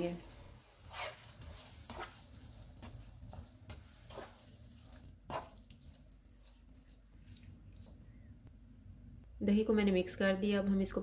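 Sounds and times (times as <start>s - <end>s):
plastic spatula scraping pan: 0.0s - 5.6s.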